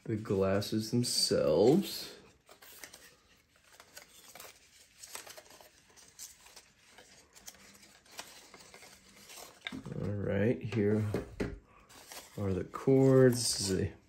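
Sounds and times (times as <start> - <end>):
rustling and small clicks of handling: 2.4 - 12.4.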